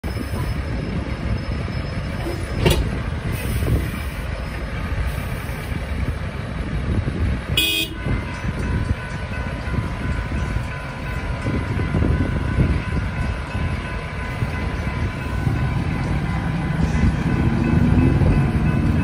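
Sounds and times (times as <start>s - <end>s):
street traffic rumble: 0.0s - 19.0s
vehicle horn toot: 7.6s - 8.1s.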